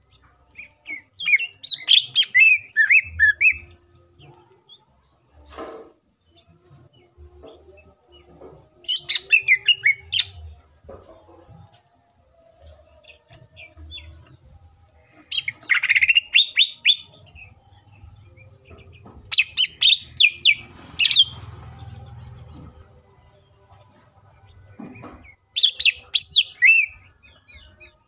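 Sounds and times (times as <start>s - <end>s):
bird singing rapid high notes: 25.3s - 27.7s.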